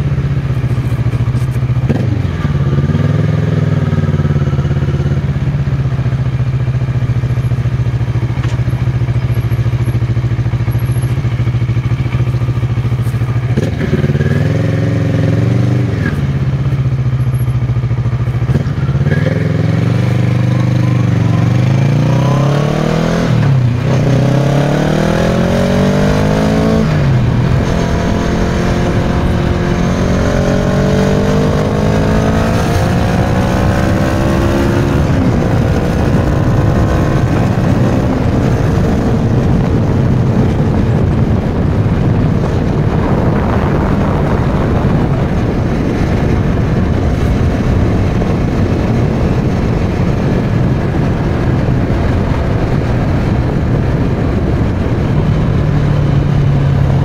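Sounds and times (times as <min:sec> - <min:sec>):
motorcycle accelerating: 0:00.0 - 0:57.0
rushing wind noise: 0:00.0 - 0:57.0.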